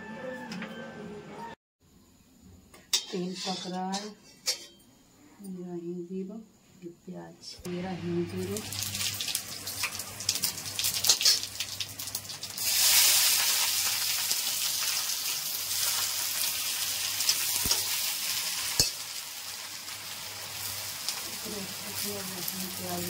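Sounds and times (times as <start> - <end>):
onions sizzling in oil: 7.7 - 23.0
seeds crackling in hot oil: 7.7 - 23.0.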